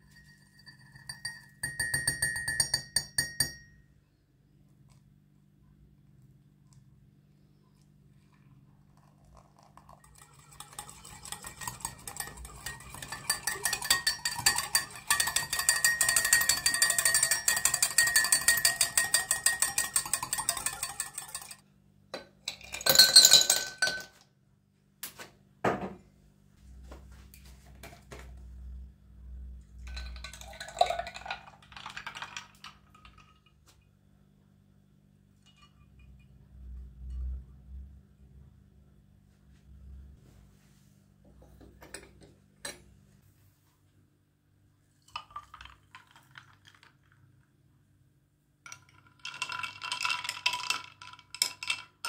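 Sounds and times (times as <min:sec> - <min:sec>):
whisk clinking in ceramic cup: 0:00.0 - 0:03.8, 0:08.9 - 0:21.6
milk pouring into a glass: 0:07.4 - 0:21.5, 0:29.8 - 0:33.6, 0:45.1 - 0:47.5, 0:48.7 - 0:52.0.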